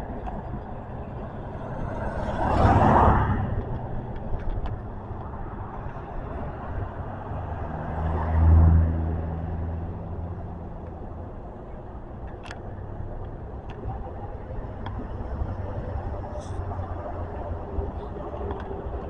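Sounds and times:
car passing: 0.0s - 11.1s
vehicle engine hum passing: 0.0s - 19.0s.

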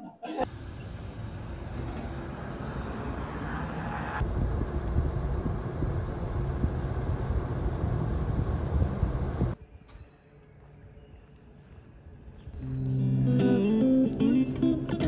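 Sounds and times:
low vehicle rumble: 0.4s - 9.6s
road noise: 0.4s - 9.6s.

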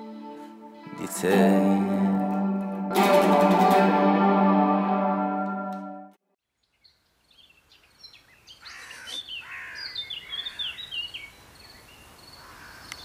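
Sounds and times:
held musical note: 0.0s - 6.2s
faint outdoor background noise: 6.4s - 13.0s
birds chirping: 6.6s - 13.0s.

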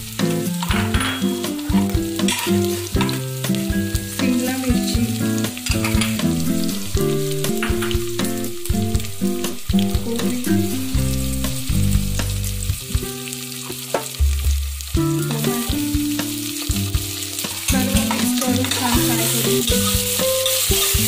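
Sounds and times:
background music: 0.0s - 21.0s
vegetables sizzling in oil: 0.0s - 21.0s
metal spatula scraping pot: 1.7s - 3.2s, 5.7s - 8.5s.

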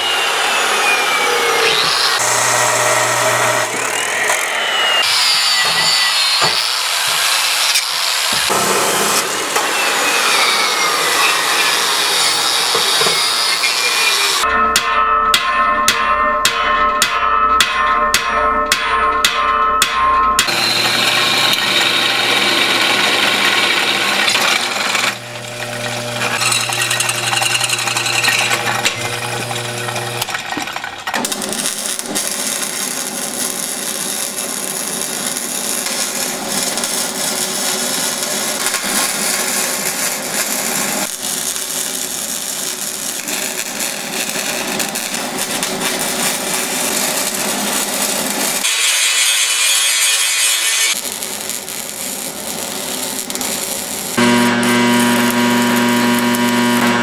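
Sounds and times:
drill press drilling metal: 0.0s - 14.4s, 20.5s - 34.5s, 52.4s - 57.0s
welder crackling: 0.2s - 15.5s, 17.6s - 57.0s
hammer striking steel on anvil: 14.4s - 22.0s.

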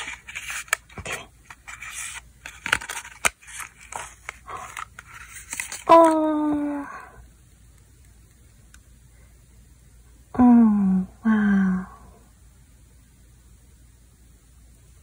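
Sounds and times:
paper rustling and scraping: 0.0s - 6.0s
person saying ooh: 5.9s - 7.2s.

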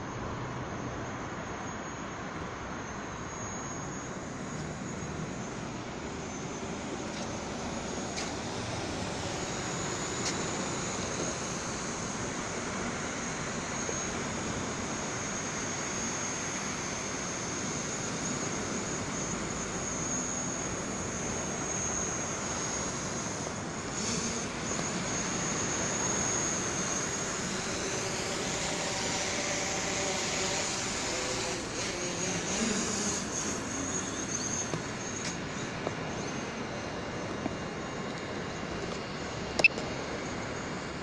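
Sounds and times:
drone propellers whirring: 0.0s - 41.0s
wind: 0.0s - 41.0s.

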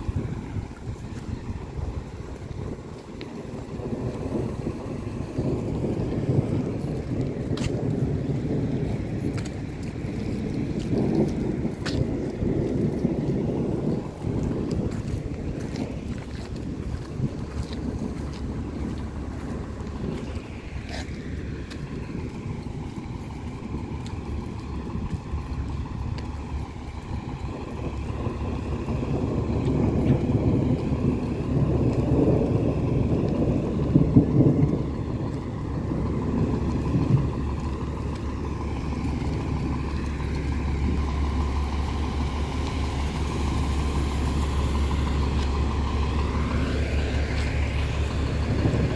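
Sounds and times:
bus engine idling: 0.0s - 48.9s
traffic noise: 0.0s - 48.9s.

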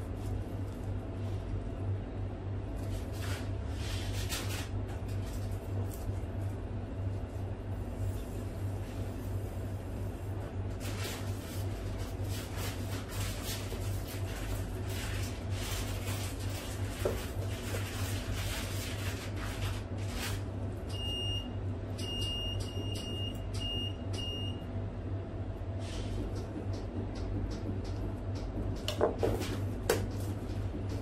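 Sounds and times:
low machine hum: 0.0s - 31.0s.

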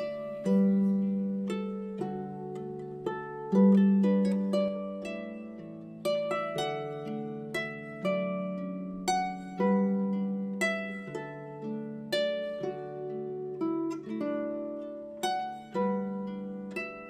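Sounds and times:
plucked string notes: 0.0s - 17.0s.

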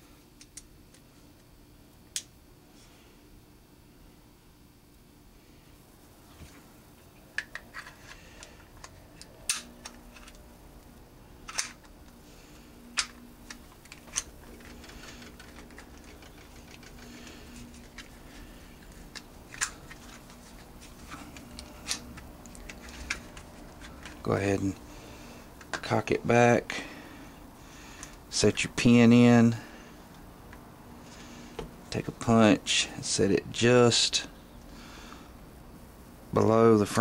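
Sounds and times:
pistol parts clicking: 7.4s - 10.4s, 11.4s - 11.9s.

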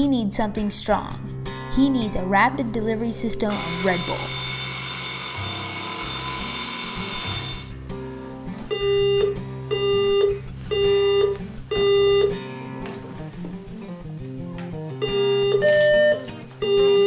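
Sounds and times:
organ-like keyboard music: 3.5s - 7.7s
electronic alarm ringing: 3.5s - 7.8s, 8.7s - 12.4s, 15.0s - 17.0s.

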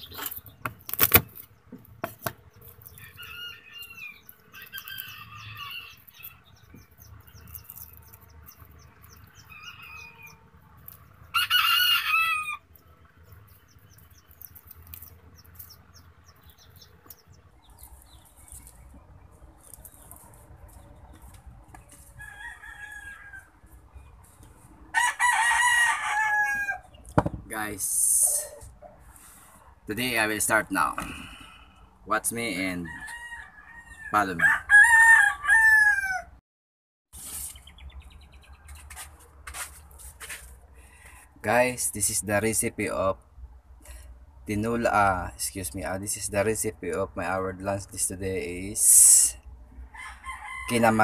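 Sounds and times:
chicken calls: 0.0s - 27.1s, 30.8s - 36.4s
rooster crowing: 2.9s - 6.4s, 9.4s - 10.6s, 11.3s - 12.7s, 22.1s - 23.7s, 24.9s - 26.9s, 32.7s - 36.4s, 49.8s - 51.0s.

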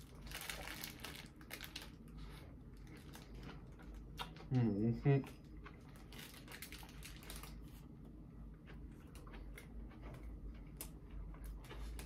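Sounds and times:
paper wrapper rustling: 0.0s - 2.0s
man chewing: 0.2s - 12.0s.

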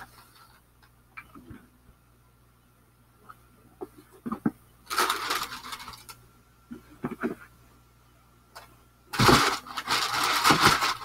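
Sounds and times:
wrapping crinkling and rustling: 4.8s - 6.2s, 9.1s - 11.0s.

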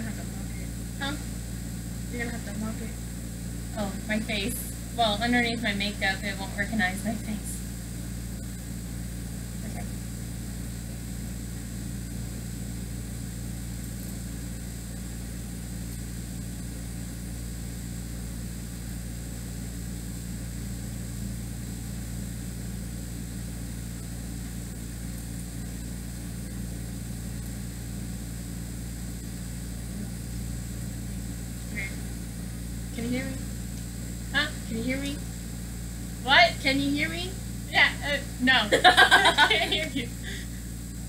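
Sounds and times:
low machine hum: 0.0s - 41.0s
faint constant hiss: 36.2s - 40.2s.

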